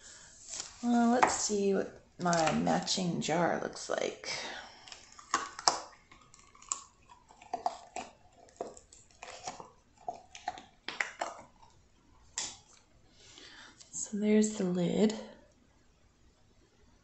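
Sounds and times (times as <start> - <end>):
resin lid clicking and crackling: 4.9 - 11.7.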